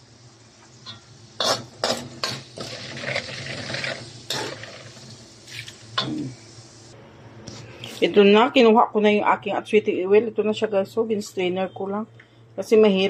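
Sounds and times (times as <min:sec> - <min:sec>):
metal ladle scraping a wok: 0:00.8 - 0:05.0.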